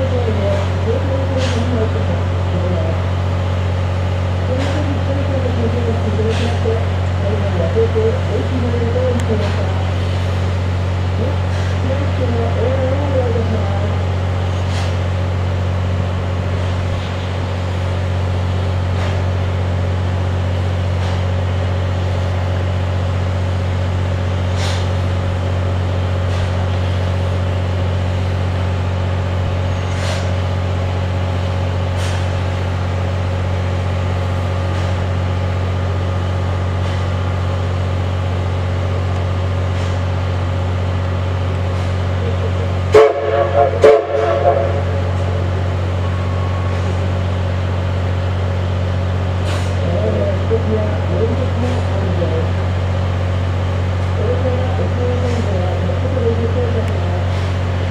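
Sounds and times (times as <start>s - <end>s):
low mechanical hum: 0.0s - 57.9s
steam whistle blowing: 42.9s - 45.4s.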